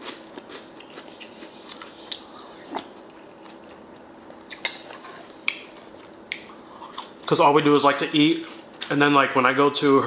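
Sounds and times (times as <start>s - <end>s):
chewing bread: 0.0s - 7.2s.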